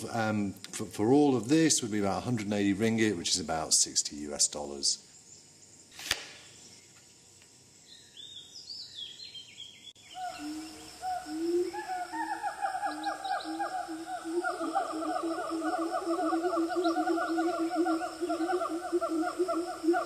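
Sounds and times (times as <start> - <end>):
single click: 6.0 - 6.4.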